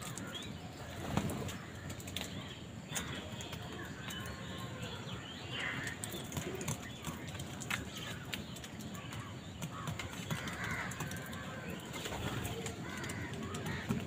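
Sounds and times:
outdoor background noise: 0.0s - 14.0s
crows cawing: 5.6s - 6.2s, 9.0s - 14.0s.

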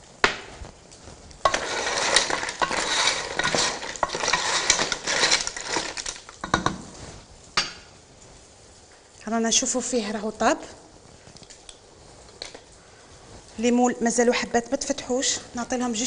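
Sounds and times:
mussel shells clattering in pot: 1.4s - 6.8s.

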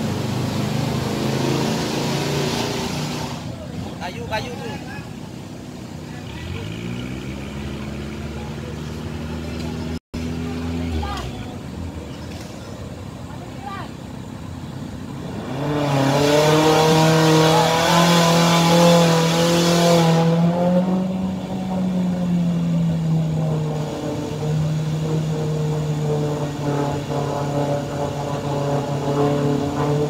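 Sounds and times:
engine revving hard: 0.0s - 3.5s, 6.2s - 11.2s, 15.2s - 30.0s.

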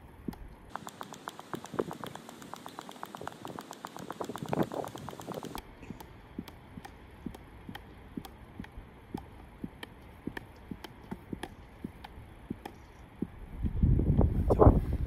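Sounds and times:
ball bouncing on turf: 0.3s - 13.4s.

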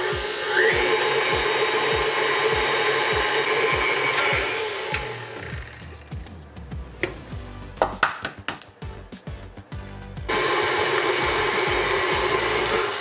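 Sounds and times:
stand mixer motor whirring: 0.0s - 5.8s, 10.3s - 13.0s.

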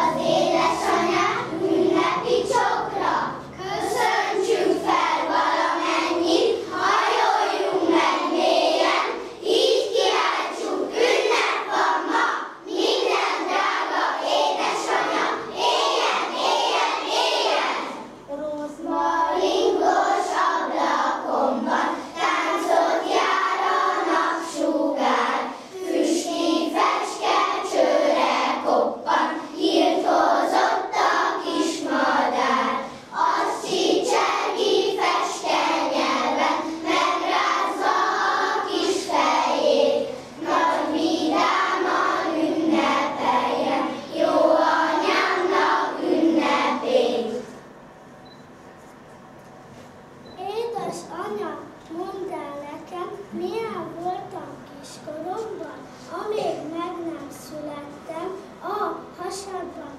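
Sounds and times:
children singing in chorus: 0.0s - 18.1s, 18.9s - 47.5s.

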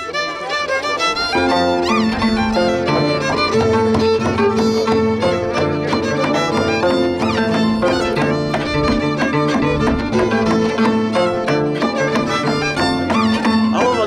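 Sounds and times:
bowed violin melody: 0.0s - 14.0s
plucked harp notes: 1.0s - 14.0s.

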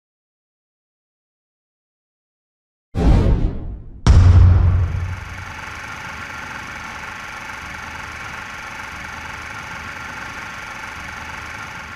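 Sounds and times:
steady noise drone: 4.0s - 7.2s.

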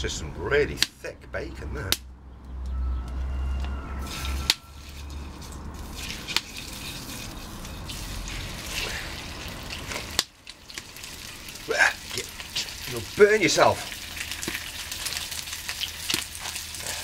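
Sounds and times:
bacon sizzling in frying pan: 5.8s - 17.0s.

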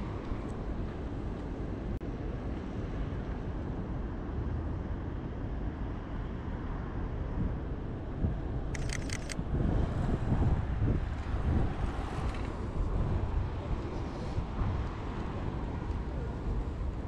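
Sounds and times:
distant traffic rumble: 7.2s - 17.0s
camera shutter clicks: 8.8s - 9.4s.

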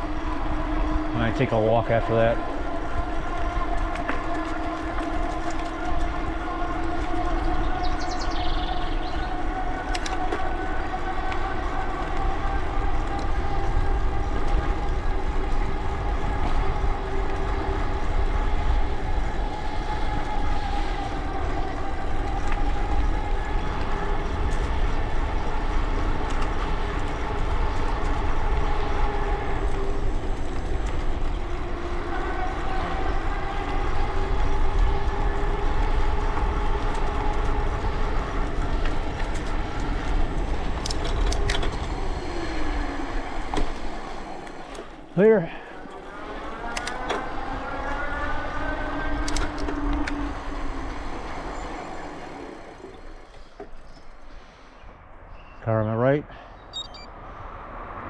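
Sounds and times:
wind rumble on microphone: 0.0s - 55.7s
short high chirp: 56.7s - 57.1s.

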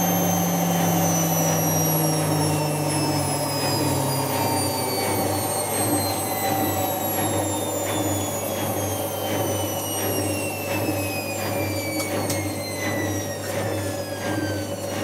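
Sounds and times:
washing machine motor whine: 0.0s - 15.0s.

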